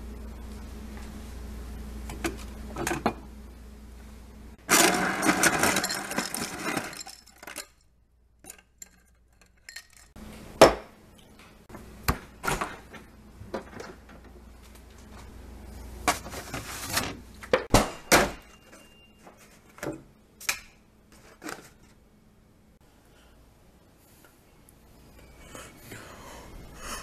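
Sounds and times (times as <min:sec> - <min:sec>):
refrigerator dispenser filling glass: 0:04.7 - 0:07.7.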